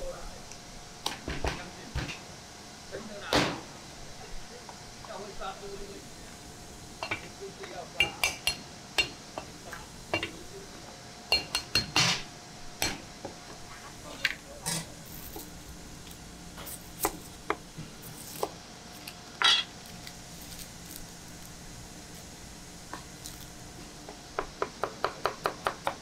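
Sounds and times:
faint steady hum: 0.0 - 26.0
metal utensils clinking: 19.4 - 19.7.

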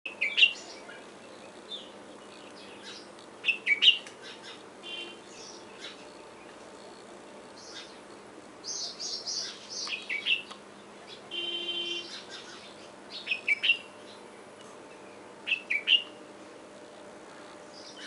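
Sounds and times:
bird buzzing call: 0.1 - 10.5, 11.2 - 14.3, 15.2 - 16.1
songbirds chirping: 0.1 - 18.0.

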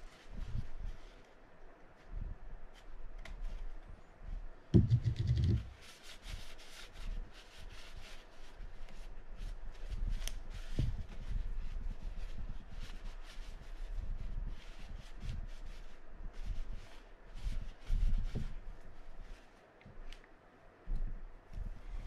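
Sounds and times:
sharp knock: 4.8 - 5.7
light rubbing: 4.8 - 9.1.

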